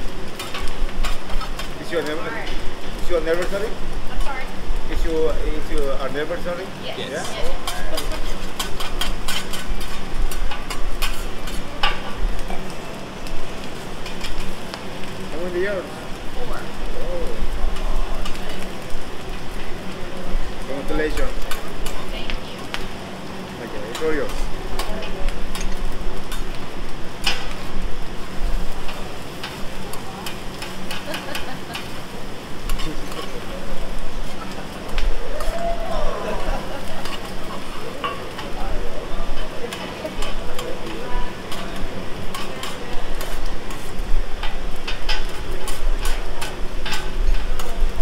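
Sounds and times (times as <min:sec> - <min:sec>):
food sizzling: 0:00.0 - 0:48.0
metal utensils clattering on griddle: 0:00.3 - 0:06.6, 0:07.2 - 0:12.7, 0:13.8 - 0:15.7, 0:17.7 - 0:19.9, 0:20.7 - 0:23.0, 0:23.7 - 0:35.5, 0:36.2 - 0:48.0
metal spatulas scraping and tapping: 0:00.4 - 0:01.7, 0:07.6 - 0:12.1, 0:30.2 - 0:32.0, 0:37.0 - 0:38.5, 0:39.7 - 0:40.7, 0:41.5 - 0:47.8.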